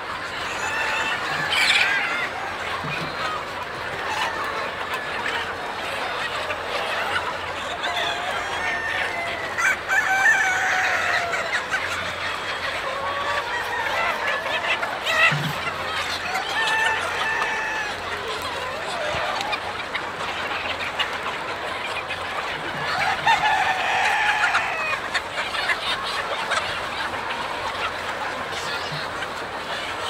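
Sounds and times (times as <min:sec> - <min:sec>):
flock of chickens clucking: 0:00.0 - 0:30.0
rooster crowing: 0:07.9 - 0:11.5, 0:16.4 - 0:18.0.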